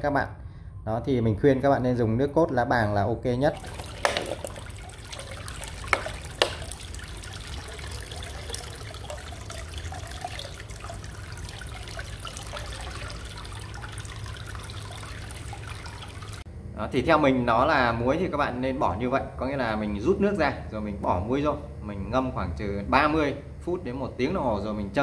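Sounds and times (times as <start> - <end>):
water trickling into tank: 3.5 - 16.5.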